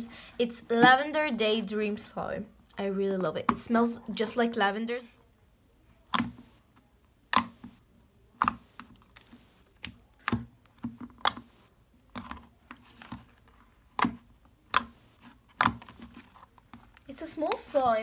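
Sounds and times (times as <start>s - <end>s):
slime squishing with clicking pops: 6.0s - 12.6s, 13.4s - 16.0s.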